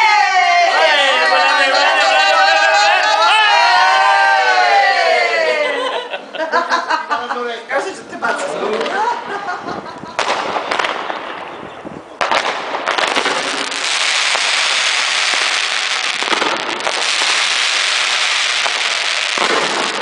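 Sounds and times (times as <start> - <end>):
firework bangs: 10.0 - 20.0
fireworks hissing crackle: 10.2 - 11.4, 12.2 - 20.0.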